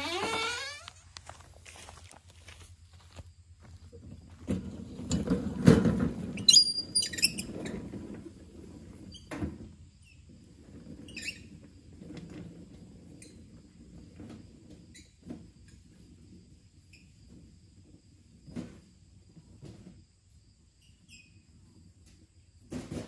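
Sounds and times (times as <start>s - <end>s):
short high squeaks: 0.0s - 1.1s, 6.4s - 7.5s
cart rolling and rattling: 3.7s - 20.2s, 21.0s - 23.0s.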